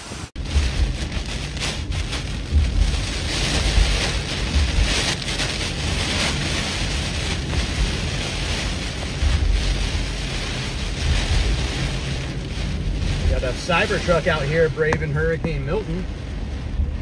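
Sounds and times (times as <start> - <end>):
heavy rain pouring: 0.0 - 17.0
wind gusts buffeting microphone: 0.3 - 17.0.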